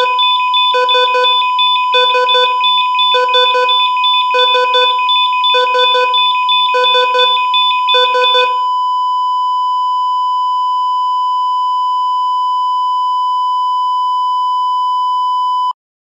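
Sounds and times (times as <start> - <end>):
rapid monitor beeps: 0.0 - 8.6
continuous high monitor tone: 0.0 - 8.7.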